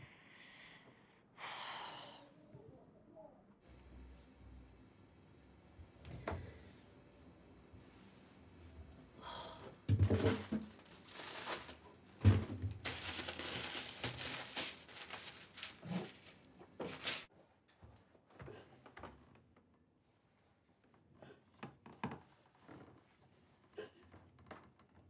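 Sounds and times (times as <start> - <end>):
paper wrapper crinkling and tearing: 10.3 - 17.3.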